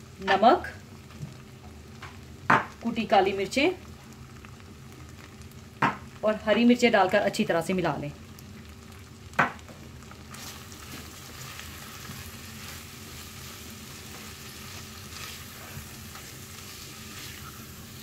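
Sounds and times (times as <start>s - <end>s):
light sizzle from a pan: 0.0s - 18.0s
spatula stirring meat in a saucepan: 10.0s - 18.0s.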